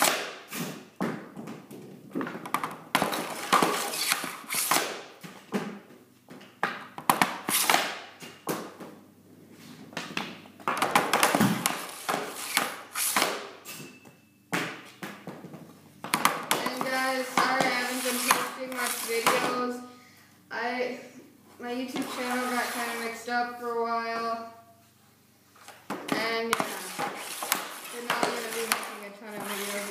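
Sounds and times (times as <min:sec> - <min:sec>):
hockey stick slapping puck: 0:00.0 - 0:05.8, 0:06.6 - 0:08.9, 0:10.0 - 0:13.7, 0:14.6 - 0:19.8, 0:21.9 - 0:23.2, 0:25.7 - 0:29.9
pucks hitting net and walls: 0:00.0 - 0:20.0, 0:20.6 - 0:24.7, 0:25.5 - 0:29.9
person speaking: 0:16.5 - 0:24.6, 0:26.1 - 0:27.2, 0:27.8 - 0:29.9.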